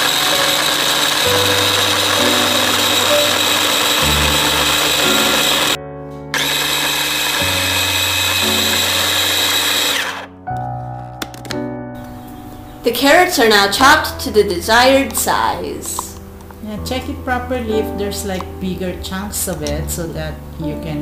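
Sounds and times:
electric food chopper running: 0.0 - 10.3.

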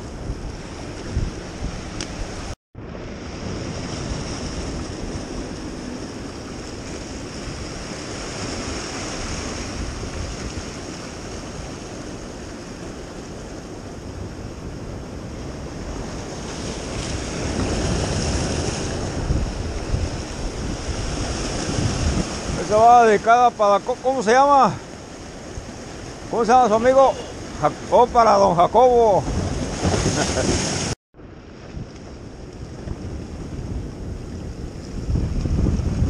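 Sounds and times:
wind rushing over microphone: 0.0 - 23.3, 24.5 - 36.0
surf breaking against rocks: 3.2 - 14.3, 15.4 - 31.0.

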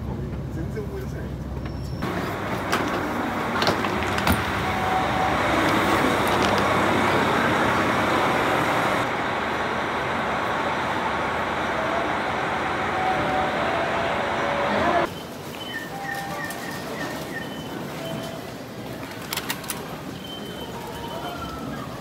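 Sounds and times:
diesel train engine running: 0.0 - 15.1.

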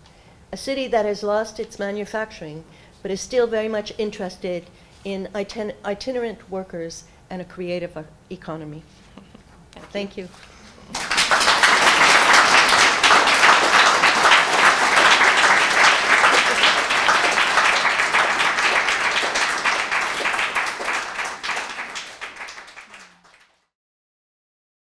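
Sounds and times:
audience applauding: 10.8 - 23.6.

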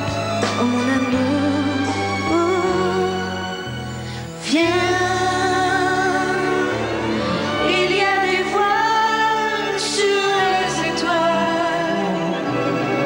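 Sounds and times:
musical accompaniment: 0.0 - 13.0
man and woman singing duet: 4.4 - 13.0.

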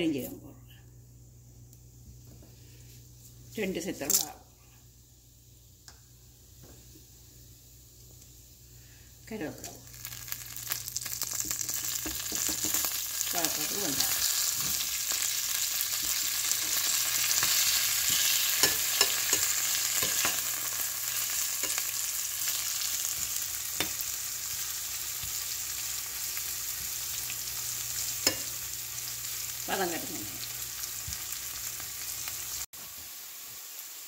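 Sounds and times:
food sizzling in hot oil: 6.6 - 34.0
metal spoon stirring in pan: 15.9 - 25.3, 28.0 - 28.6.

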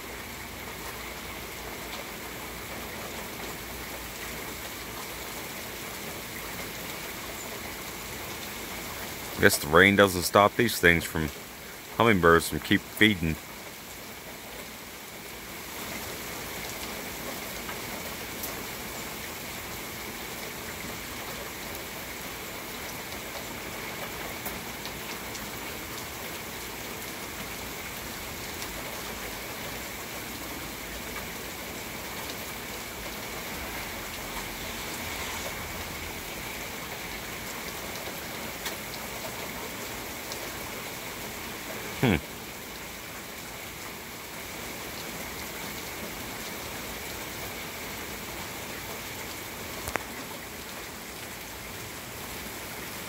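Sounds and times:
rain falling: 0.0 - 53.0
faint drip ticks: 49.8 - 50.2.

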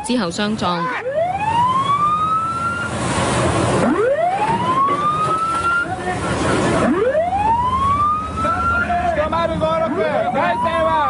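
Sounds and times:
alarm siren wailing: 0.0 - 3.0, 3.6 - 11.0
wind and sea rushing: 1.2 - 8.4.

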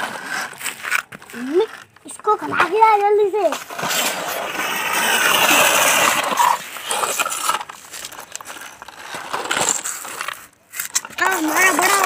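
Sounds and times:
plastic toy trucks clicking: 4.6 - 12.0.

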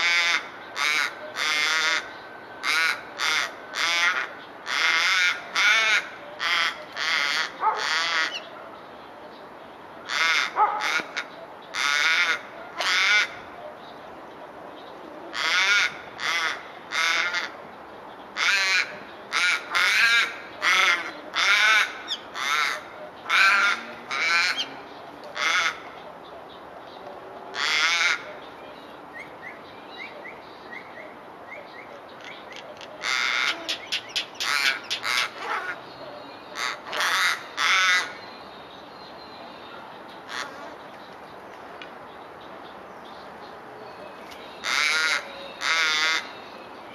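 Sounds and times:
raven cawing: 0.0 - 8.5, 10.0 - 13.5, 15.3 - 17.6, 18.4 - 26.0, 27.5 - 28.4, 33.0 - 35.8, 36.6 - 38.2, 40.3 - 40.8, 44.6 - 46.4.

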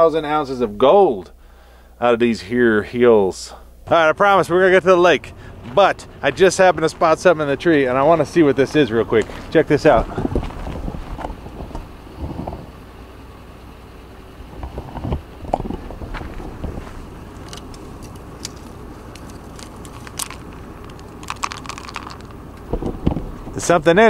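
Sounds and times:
twigs rustling and cracking: 15.5 - 23.4.

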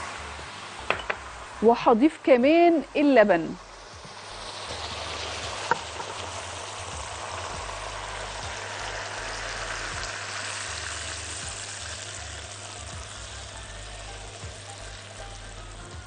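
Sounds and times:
milk sizzling in a hot pan: 2.8 - 16.0.

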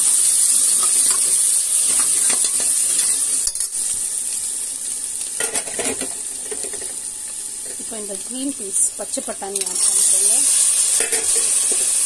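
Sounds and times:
food sizzling in hot oil: 0.0 - 12.0
steel spoon scraping pot: 11.0 - 11.9.

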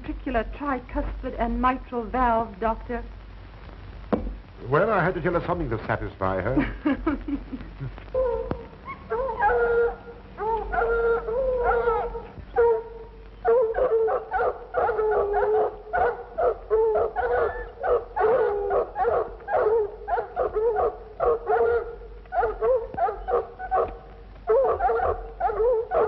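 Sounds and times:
dogs baying and barking: 8.2 - 26.0.

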